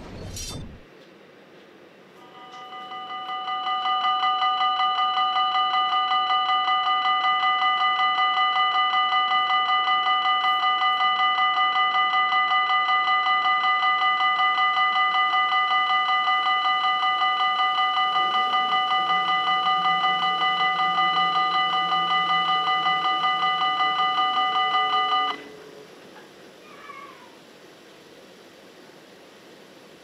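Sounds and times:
level crossing warning bell: 0:02.2 - 0:25.6.

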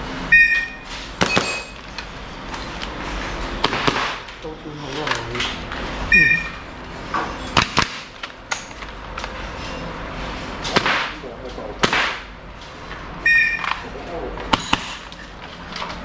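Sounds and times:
short beep: 0:00.3 - 0:01.7, 0:06.1 - 0:06.6, 0:13.2 - 0:13.6
airsoft pistols firing: 0:01.2 - 0:01.6, 0:03.6 - 0:04.3.

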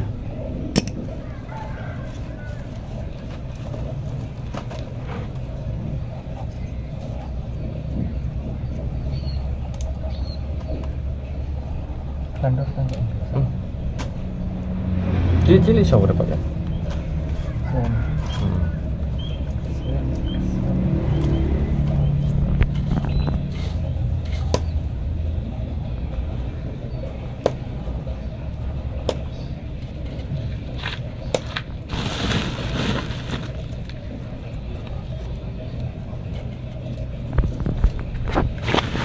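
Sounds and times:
steady low rumble: 0:00.0 - 0:39.0
potting soil crunching under fingers: 0:30.7 - 0:34.2, 0:37.0 - 0:39.0
rustling: 0:30.8 - 0:34.2, 0:36.9 - 0:39.0.

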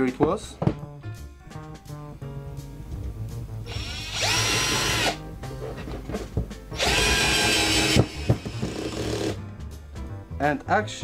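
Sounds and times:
cordless drill whining: 0:03.7 - 0:05.2, 0:06.8 - 0:09.4
drill clutch clicking: 0:03.7 - 0:05.2, 0:06.8 - 0:09.4.

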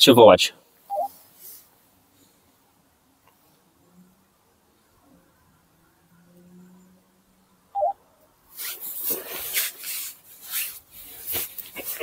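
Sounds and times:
short electronic beep: 0:00.9 - 0:01.1, 0:07.8 - 0:08.0.

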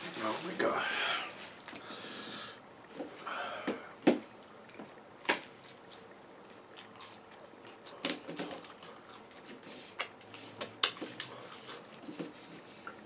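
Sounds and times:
person chewing food: 0:03.8 - 0:13.0.

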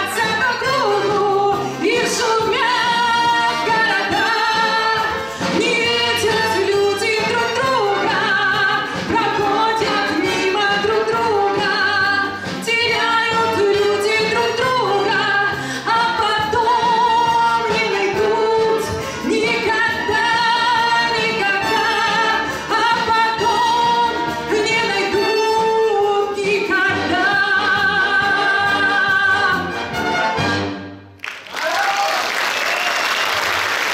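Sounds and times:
woman singing: 0:00.0 - 0:29.7
military wind band playing: 0:27.6 - 0:31.0.

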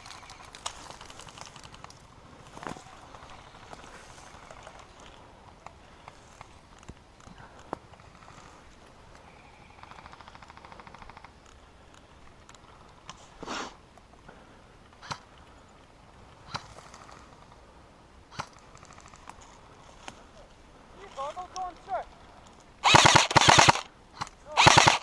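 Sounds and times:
airsoft gun automatic fire: 0:22.8 - 0:23.9, 0:24.5 - 0:25.0
airsoft gun single shots: 0:22.8 - 0:25.0.

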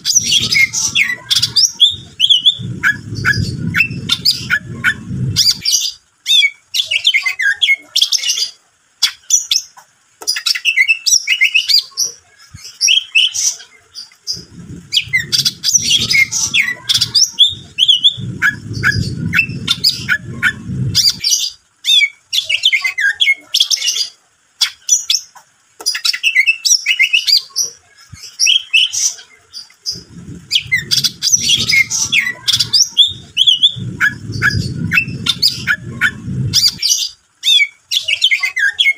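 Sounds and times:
low rumble: 0:00.0 - 0:05.8, 0:14.3 - 0:21.3, 0:29.9 - 0:36.9
bird song with chirps and trills: 0:00.0 - 0:38.9.

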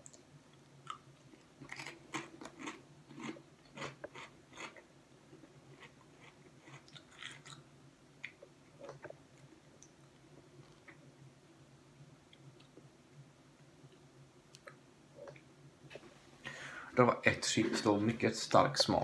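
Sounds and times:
potato chip crunching: 0:01.6 - 0:04.8.

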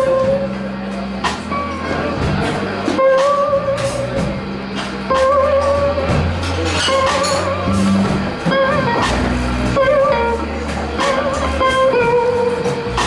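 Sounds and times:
electric guitar blues solo: 0:00.0 - 0:00.5, 0:03.0 - 0:04.2, 0:05.1 - 0:06.2, 0:06.9 - 0:13.0
bass guitar: 0:00.0 - 0:13.0
drums: 0:00.0 - 0:13.0.

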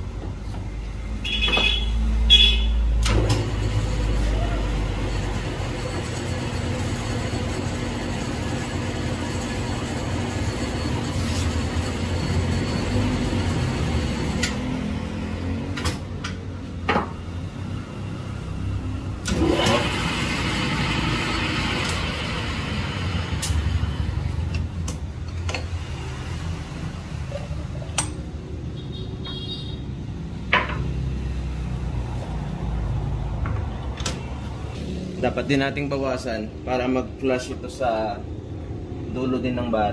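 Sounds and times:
lathe motor hum: 0:03.1 - 0:15.4, 0:19.2 - 0:24.6
tool scraping metal: 0:10.9 - 0:13.7.

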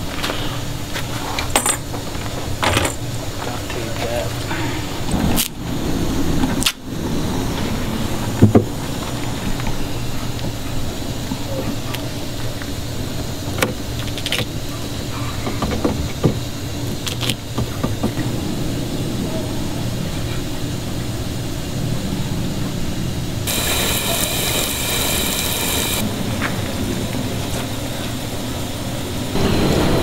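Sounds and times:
low mechanical hum: 0:00.0 - 0:30.0
water spraying from spigot: 0:23.5 - 0:26.0.

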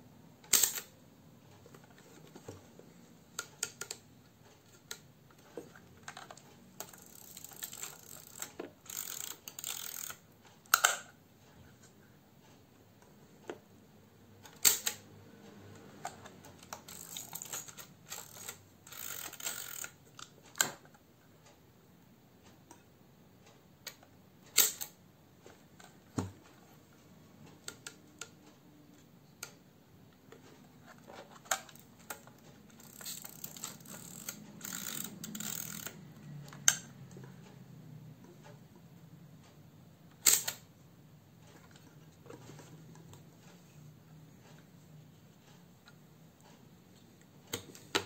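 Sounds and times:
camera control clicks: 0:00.5 - 0:00.9
camera crank ratcheting: 0:00.5 - 0:00.9, 0:04.7 - 0:11.1, 0:16.6 - 0:20.8, 0:31.0 - 0:36.8, 0:40.2 - 0:40.6.

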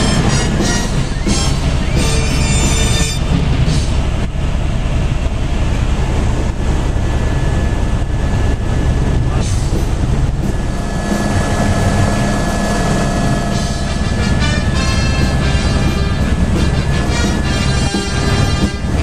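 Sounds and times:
helicopter cabin rumble: 0:00.0 - 0:19.0.

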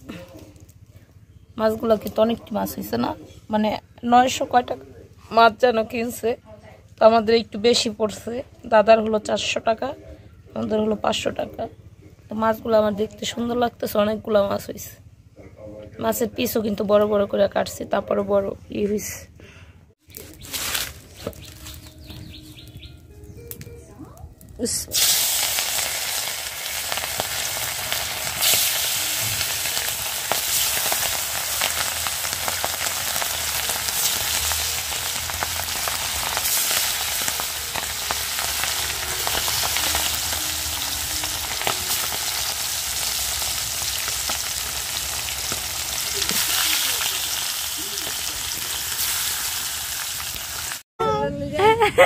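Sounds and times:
fish sizzling in hot oil: 0:24.9 - 0:50.8.

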